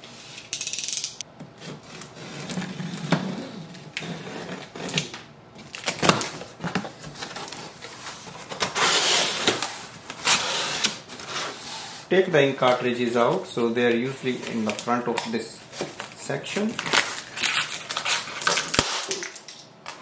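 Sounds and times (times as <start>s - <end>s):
cardboard tearing hiss: 8.7s - 12.1s.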